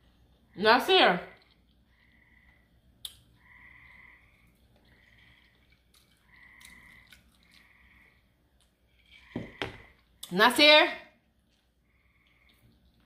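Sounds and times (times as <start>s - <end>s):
frogs calling: 1.9s - 8.4s, 9.2s - 10.0s.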